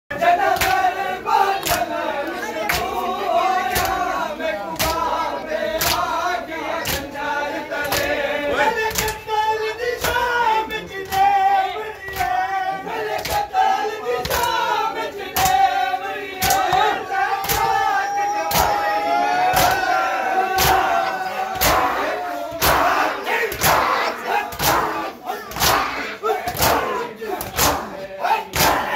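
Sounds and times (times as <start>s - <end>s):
crowd of men chanting: 0.1s - 28.9s
rhythmic chest-beating slaps: 0.2s - 18.8s, 19.5s - 28.9s.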